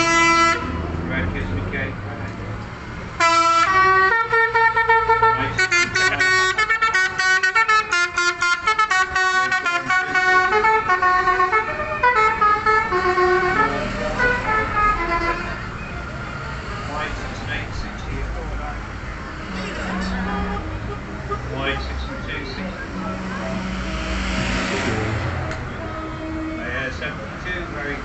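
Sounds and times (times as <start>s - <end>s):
vehicle horns honking: 0.0s - 0.8s, 3.2s - 16.2s, 19.0s - 27.2s
engines rumbling: 0.0s - 28.0s.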